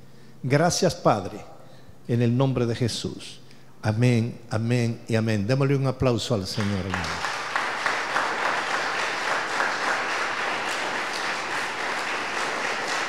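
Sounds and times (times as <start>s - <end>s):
congregation applauding: 6.5s - 13.0s.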